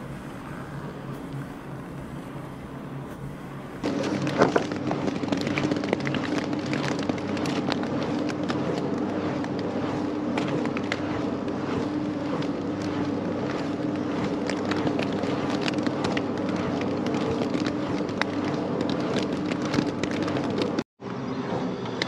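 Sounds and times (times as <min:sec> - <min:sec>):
wind turbine humming: 0:00.0 - 0:05.1.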